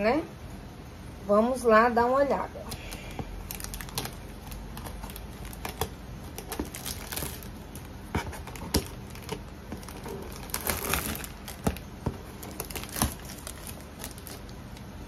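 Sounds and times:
paper packing rustling and crinkling: 2.7s - 15.0s
sharp crackles and knocks: 3.1s - 14.9s.

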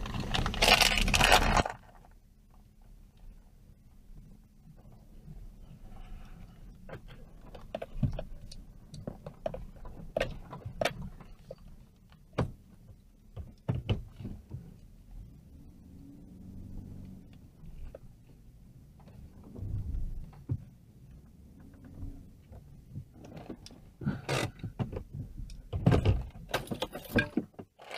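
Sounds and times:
engine and road hum: 0.0s - 27.4s
car knocks and rattles over bumps: 6.7s - 15.1s, 17.8s - 27.9s.

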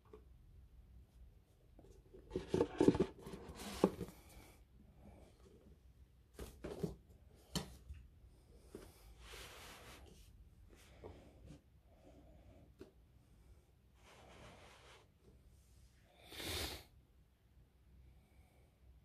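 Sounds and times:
cardboard box handling: 2.1s - 4.2s.

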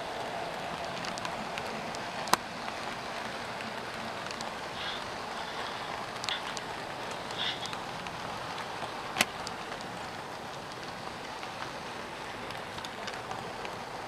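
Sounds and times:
model train wheels rushing on track: 0.0s - 14.0s.

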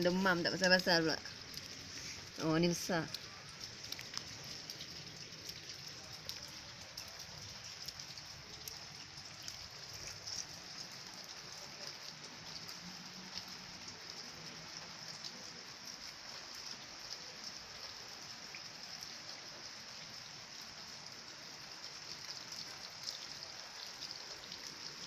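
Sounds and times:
hailstones ticking: 0.0s - 15.3s
rain falling on patio: 0.0s - 25.0s.

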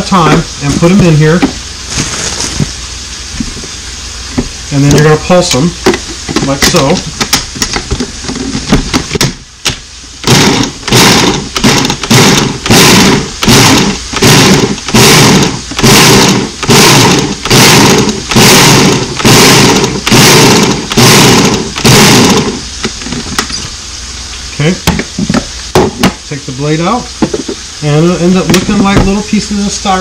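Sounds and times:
kitchen chopper motor pulsing: 10.2s - 22.7s.

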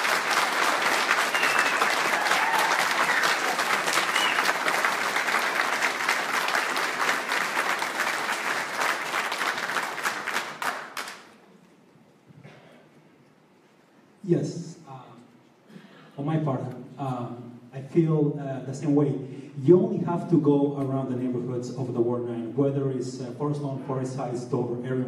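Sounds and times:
audience applauding: 0.0s - 11.4s.

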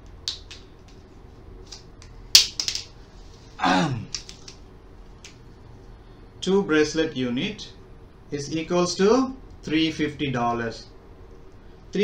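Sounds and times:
marker caps clicking: 0.2s - 0.6s, 1.7s - 2.9s, 4.1s - 4.6s.

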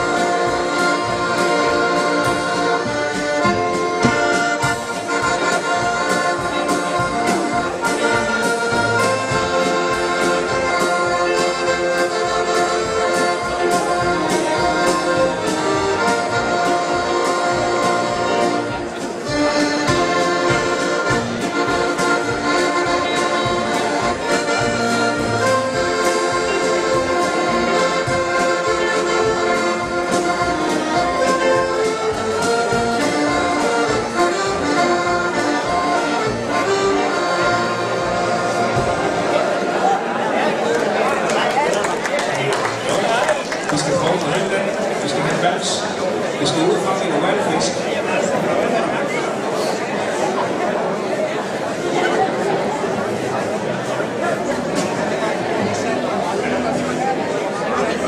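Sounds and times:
steady drum beat: 0.0s - 37.1s
bass: 0.0s - 39.7s
accordion melody: 0.0s - 41.2s, 42.7s - 58.0s
guitar: 0.0s - 58.0s.

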